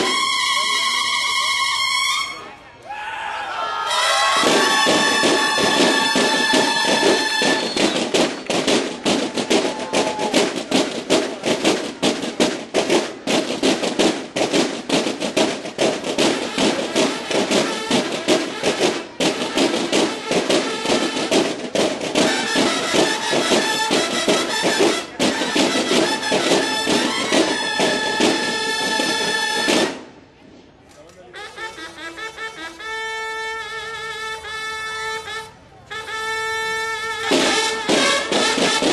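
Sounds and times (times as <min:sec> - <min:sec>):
bugles holding a chord: 0:03.9 - 0:30.1, 0:37.0 - 0:38.9
rapid dense drumming: 0:04.4 - 0:30.0, 0:37.2 - 0:38.9.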